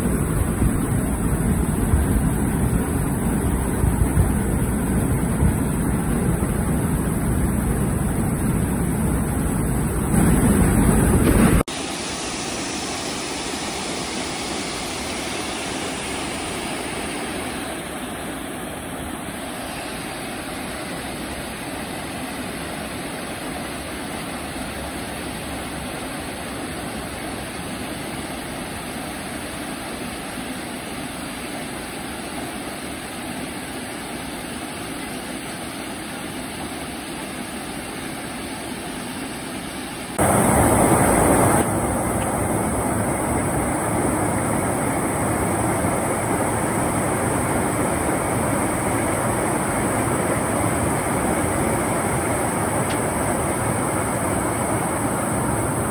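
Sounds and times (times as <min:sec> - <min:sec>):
waterfall rushing: 0:00.0 - 0:21.6, 0:40.2 - 0:55.9.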